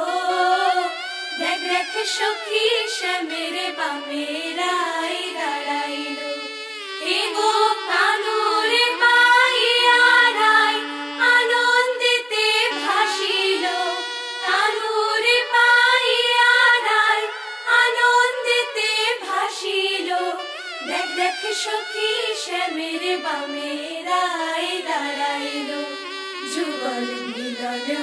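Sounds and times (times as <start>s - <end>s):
voices singing a song: 0.0s - 28.0s.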